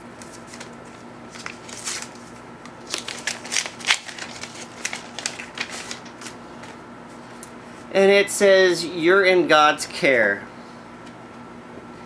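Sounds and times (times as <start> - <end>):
paper envelope rustling: 0.2 - 6.8.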